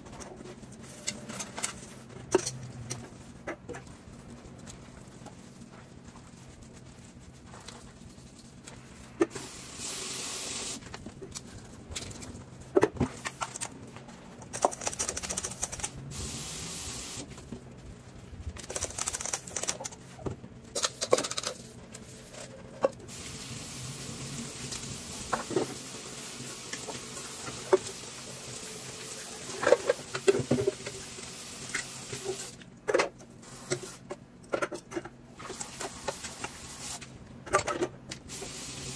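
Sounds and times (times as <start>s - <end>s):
tap water running: 9.3s - 10.8s, 23.1s - 32.6s, 35.4s - 37.0s, 38.3s - 38.9s.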